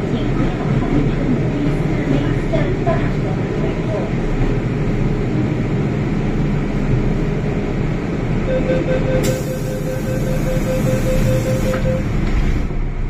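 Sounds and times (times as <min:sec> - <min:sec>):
rapid beeping tone: 0:08.5 - 0:12.2.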